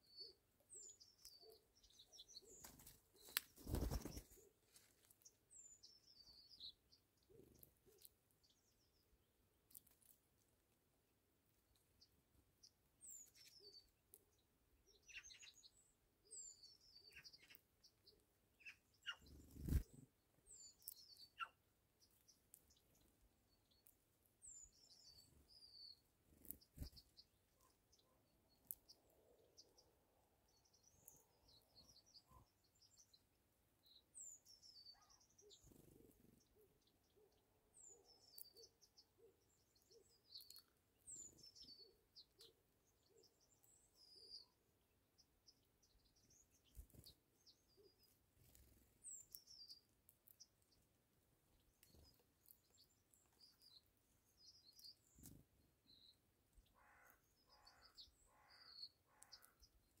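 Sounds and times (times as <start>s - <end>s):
small bird chirps and whistles: 14.9s - 17.6s
harsh bird calls: 56.7s - 59.7s.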